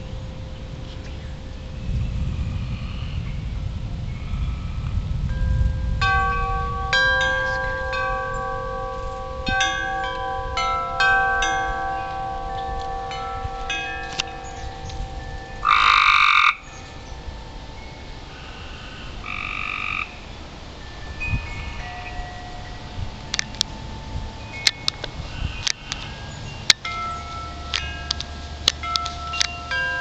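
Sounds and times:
wind chimes ringing: 0.0s - 30.0s
croaking animal call: 15.6s - 16.6s, 18.4s - 20.2s.

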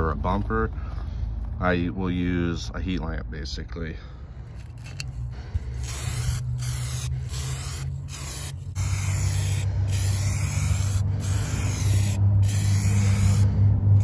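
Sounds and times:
low hum: 4.1s - 14.0s
aerosol spray hissing: 5.6s - 14.0s.

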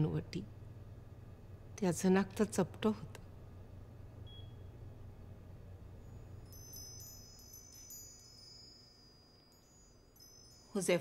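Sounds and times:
faint low hum: 0.0s - 11.0s
high thin chime tones: 6.1s - 11.0s.

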